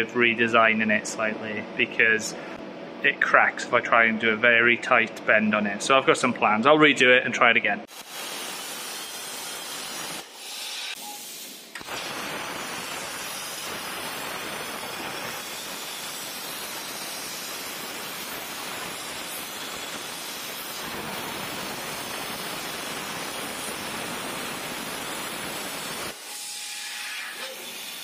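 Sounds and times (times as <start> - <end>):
plasma cutter torch hissing: 7.9 - 28.0.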